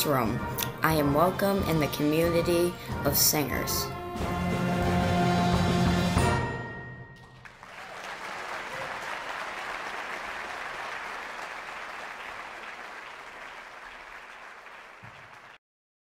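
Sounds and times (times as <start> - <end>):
audience applauding: 7.2 - 15.6.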